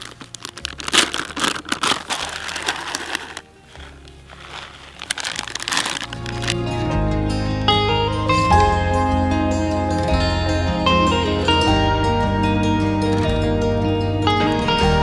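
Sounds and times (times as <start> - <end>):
plastic pouch crinkling: 0.0 - 6.6
soft guitar music: 3.4 - 15.0.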